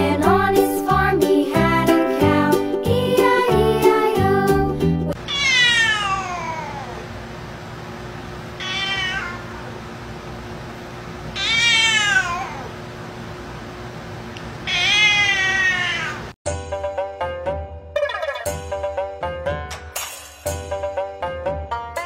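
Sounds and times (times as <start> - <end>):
cat yowling: 5.2 - 7.0, 8.6 - 9.7, 11.4 - 12.8, 14.6 - 16.3.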